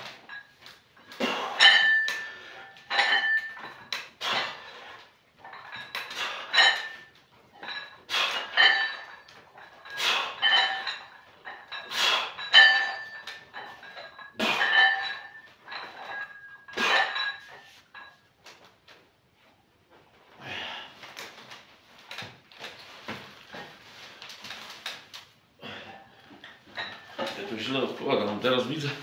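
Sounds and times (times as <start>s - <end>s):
weight plates clanking on barbell: 0.0s - 17.8s.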